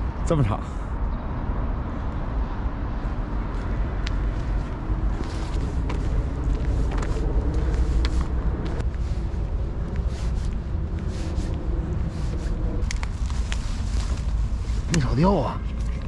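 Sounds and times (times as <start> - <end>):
low outdoor rumble: 0.0 - 16.0
footsteps: 3.0 - 15.0
dry grass swishing: 9.0 - 14.9.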